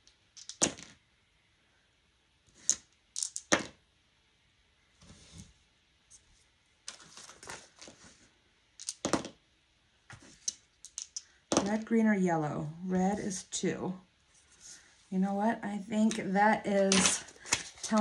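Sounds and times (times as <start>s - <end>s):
dice rattling in a tray: 0.3s - 1.0s, 2.6s - 3.8s, 8.8s - 9.4s, 10.4s - 11.8s
paper rustling: 6.9s - 8.3s.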